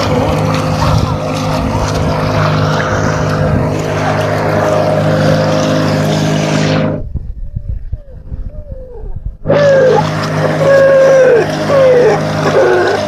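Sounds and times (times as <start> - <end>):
water rushing along hull: 0.0 - 7.2, 9.3 - 13.0
boat engine running: 0.0 - 13.0
faint low rumble: 6.6 - 9.8.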